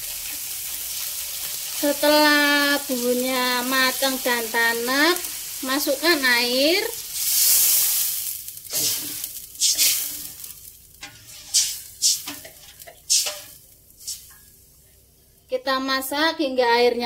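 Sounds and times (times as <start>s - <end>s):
water sizzling in hot wok: 0.0s - 14.7s
metal spatula scraping wok: 7.2s - 14.5s.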